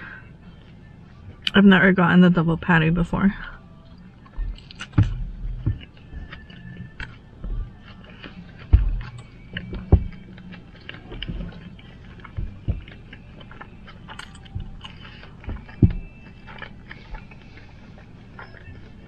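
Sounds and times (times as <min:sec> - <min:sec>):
chewing and wet mouth smacks: 0:03.8 - 0:19.0
sharp low thumps: 0:04.4 - 0:06.3, 0:08.7 - 0:10.3, 0:12.3 - 0:13.0, 0:15.5 - 0:16.1.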